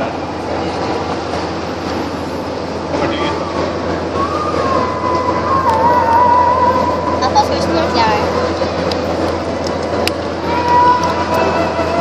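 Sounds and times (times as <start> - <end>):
boat engine rumble: 0.0 - 12.0.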